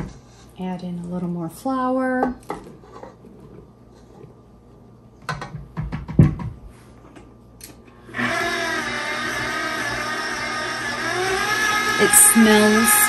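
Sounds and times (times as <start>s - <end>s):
stand mixer motor running: 8.1s - 13.0s.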